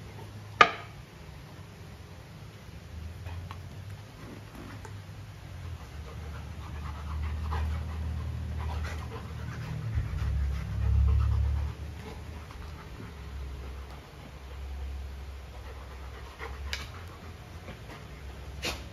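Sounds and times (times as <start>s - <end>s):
dog panting: 5.5s - 18.9s
low rumble: 5.6s - 18.5s.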